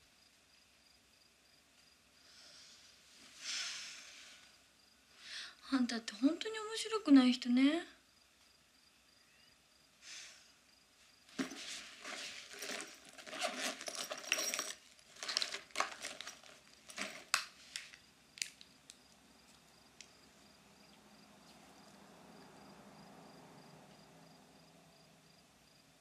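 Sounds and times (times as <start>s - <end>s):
rustling and light knocks: 11.3s - 18.0s.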